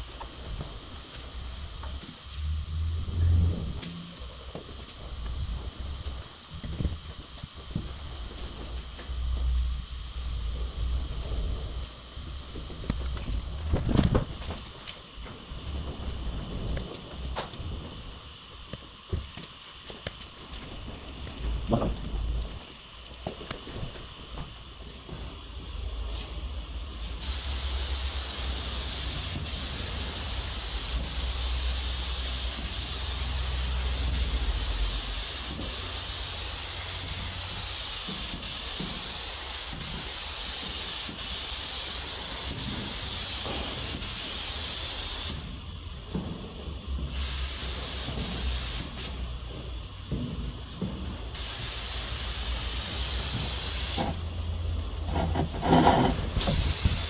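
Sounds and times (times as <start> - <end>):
paint spray gun hissing: 26.9 - 45.5, 47.1 - 49.3, 51.3 - 54.3, 56.4 - 57.0.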